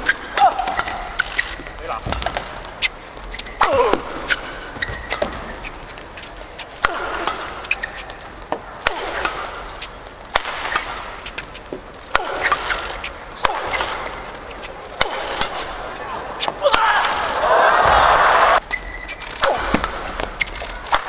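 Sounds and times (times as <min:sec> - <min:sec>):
racket hitting shuttlecock: 0:00.0 - 0:06.0, 0:06.6 - 0:21.0
shoes squealing on court: 0:00.0 - 0:08.4, 0:12.3 - 0:14.8, 0:17.8 - 0:21.0.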